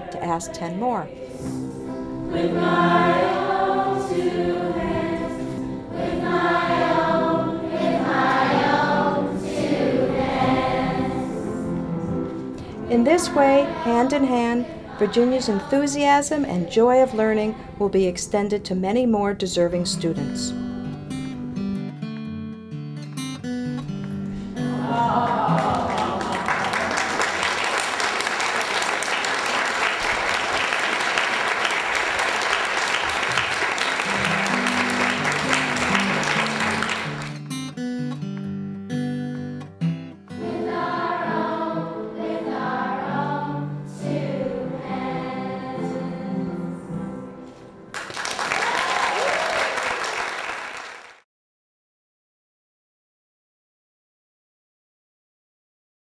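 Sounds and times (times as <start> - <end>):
children's choir singing: 0.0 - 18.0, 24.6 - 37.3, 40.4 - 47.8
guitar accompaniment: 0.0 - 28.6, 31.6 - 48.4
applause: 25.3 - 37.8, 47.9 - 51.2.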